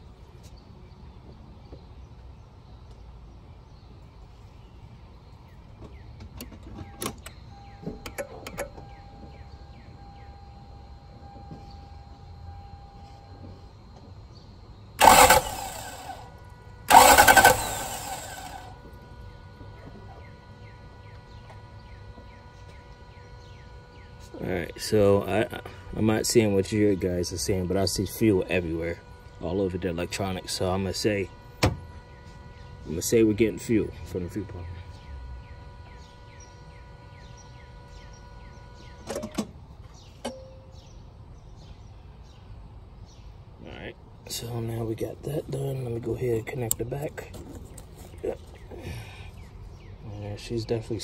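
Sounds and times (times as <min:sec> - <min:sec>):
faint steady high whine: 0:00.0 - 0:51.0
sharp clicks: 0:15.0 - 0:16.2, 0:16.9 - 0:18.6
engine starter cranking: 0:15.0 - 0:18.9
click with a brief ring: 0:40.2 - 0:40.7.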